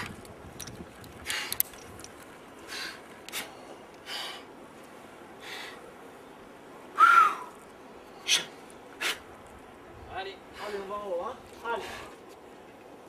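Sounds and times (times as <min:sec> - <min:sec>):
sharp effortful exhalations: 0:08.2 - 0:09.3.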